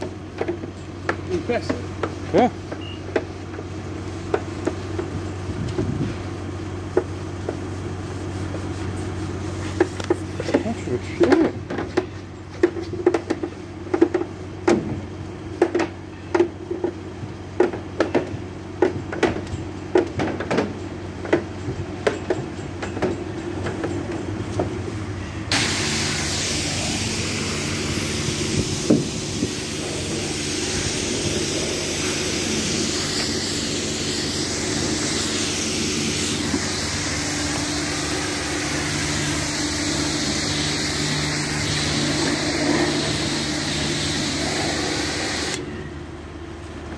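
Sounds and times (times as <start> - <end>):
brush scrubbing van panels: 5.8 - 14.3, 25.5 - 45.6
pressure washer water hissing: 25.5 - 45.6
pump humming: 25.5 - 46.1.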